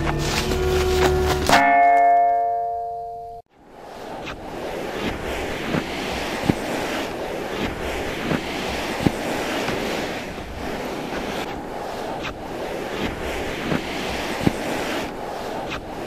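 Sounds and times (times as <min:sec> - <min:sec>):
steady rushing noise: 0:03.5 - 0:16.0.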